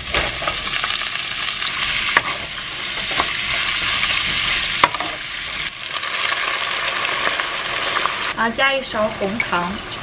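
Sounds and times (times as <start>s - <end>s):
meat sizzling in a frying pan: 0.0s - 10.0s.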